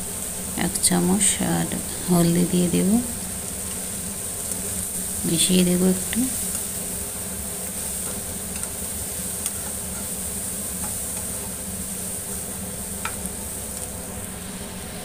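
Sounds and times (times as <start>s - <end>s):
frying sizzle: 0.0s - 15.0s
metal spatula stirring in pan: 6.4s - 11.7s.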